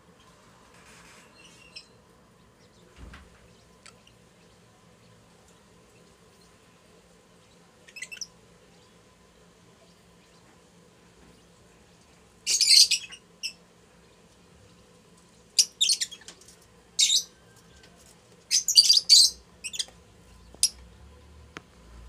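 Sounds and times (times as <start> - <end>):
lovebirds chirping shrilly: 12.5 - 13.6, 18.5 - 19.9.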